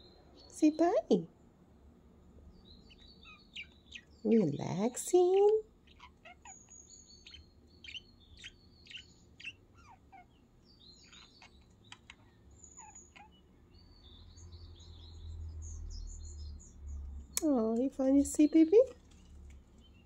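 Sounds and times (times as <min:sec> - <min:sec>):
budgerigars chirping: 0:02.7 - 0:16.8.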